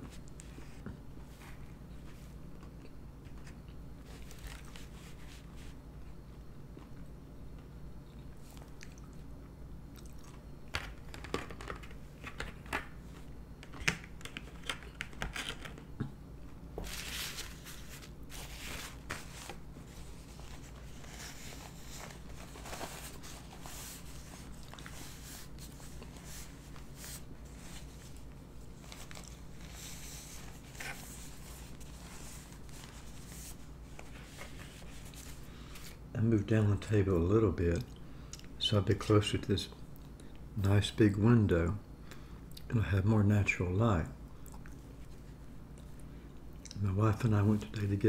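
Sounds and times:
steady low hum: 0.0s - 48.0s
chewing: 8.4s - 9.3s, 9.9s - 10.4s
paper napkin rustling: 16.8s - 36.0s.

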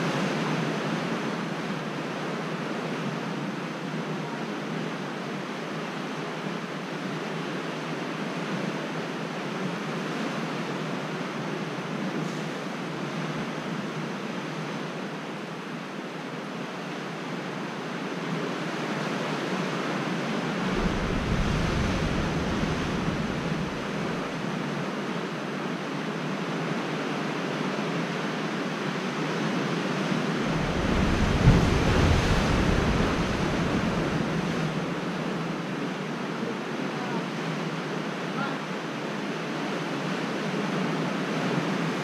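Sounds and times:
sea surf: 0.0s - 42.0s
wind buffeting microphone: 20.5s - 24.8s, 30.2s - 35.0s.

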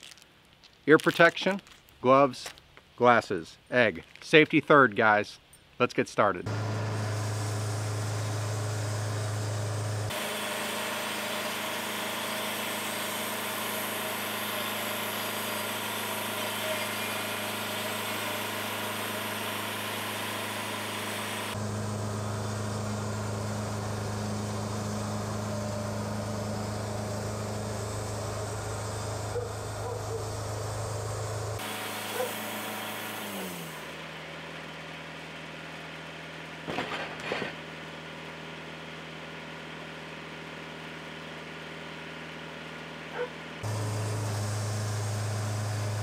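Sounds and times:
sawmill engine humming: 6.4s - 46.0s
band saw blade cutting log: 6.5s - 34.4s, 43.2s - 46.0s.

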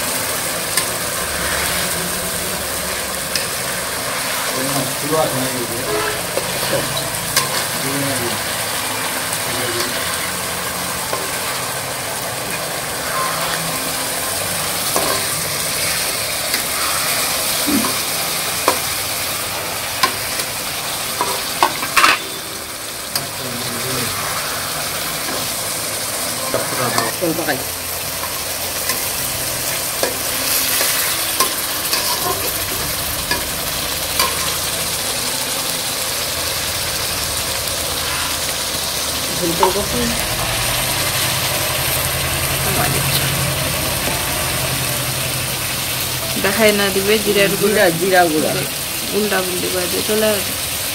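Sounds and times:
fish sizzling in oil: 0.0s - 50.9s
metal spatula scraping pan: 5.6s - 7.8s, 14.8s - 22.5s.

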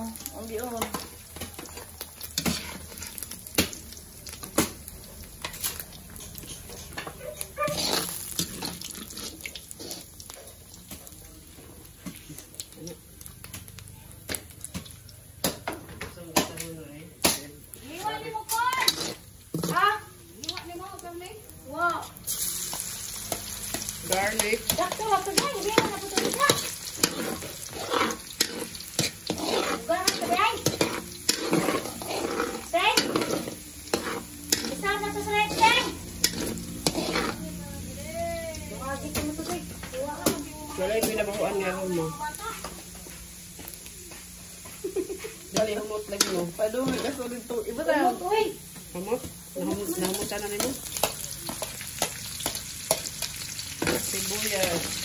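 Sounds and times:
pork sizzling in a wok: 0.0s - 55.0s
metal spatula scraping a wok: 0.5s - 3.7s, 5.4s - 10.1s, 18.0s - 19.9s, 22.3s - 38.1s, 45.4s - 48.2s, 52.0s - 55.0s.

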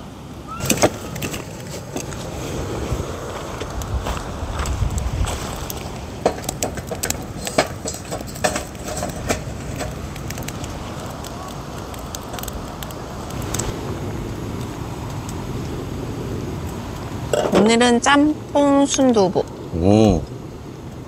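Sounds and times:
steady low rumble: 1.0s - 21.0s
sharp light clicks and knocks: 6.2s - 13.0s.

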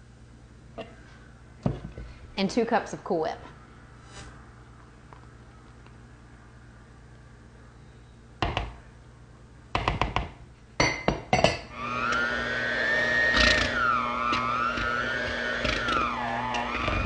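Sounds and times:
electric hand mixer whine: 11.7s - 17.0s.

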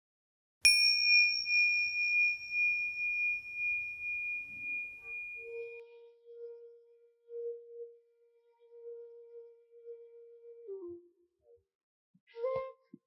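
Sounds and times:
small bell ringing: 0.7s - 5.8s.

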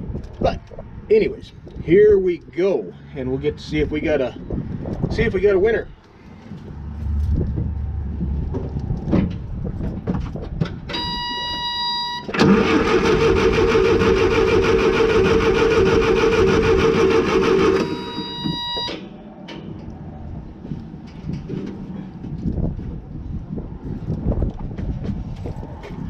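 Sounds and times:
warning buzzer tone: 11.0s - 12.3s, 17.6s - 19.0s
starter cranking engine: 12.3s - 18.2s.

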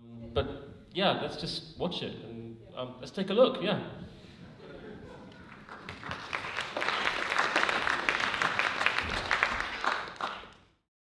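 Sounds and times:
audience applauding: 5.1s - 10.8s.

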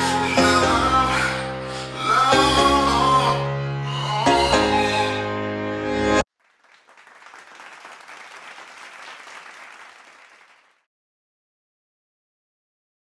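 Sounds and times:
applause: 6.3s - 10.9s.

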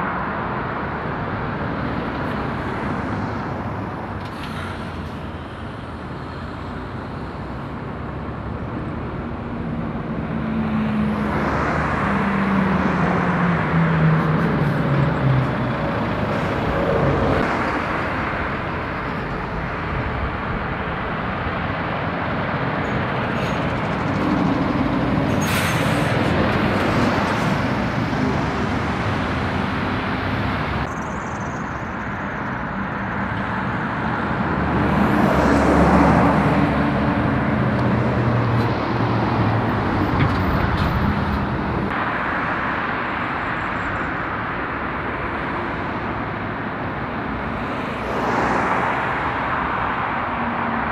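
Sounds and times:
lorry and car engines passing: 0.0s - 50.9s.

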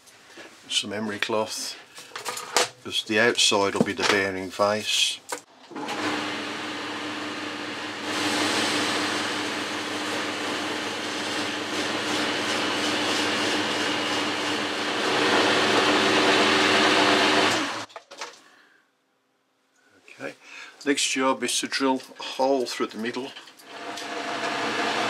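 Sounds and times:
lathe humming: 5.8s - 17.9s, 23.6s - 25.0s.

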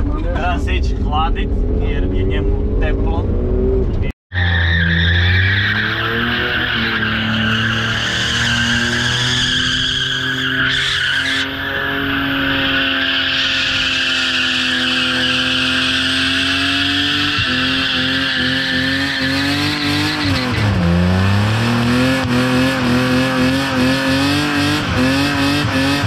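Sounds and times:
car engine revving: 0.0s - 26.0s
tyres squealing: 4.4s - 20.6s.

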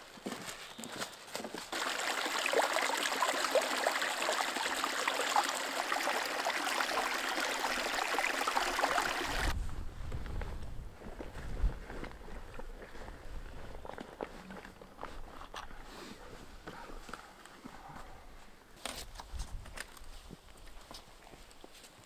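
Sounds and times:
stream trickling and gurgling: 1.6s - 9.6s
wind rumble on microphone: 9.3s - 13.9s.

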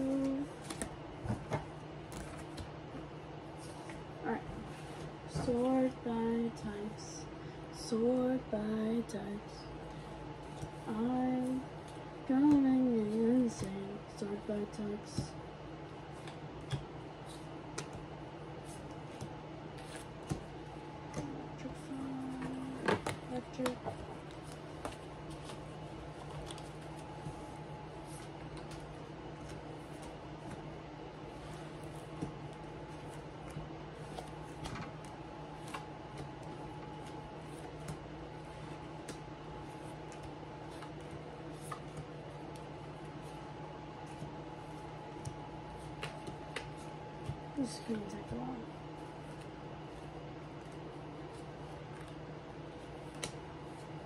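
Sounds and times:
low room hum: 0.0s - 54.0s
cards sliding and tapping: 16.2s - 18.0s, 52.9s - 53.4s
cards clicking and tapping: 16.2s - 18.1s, 45.2s - 48.4s, 53.0s - 53.4s.

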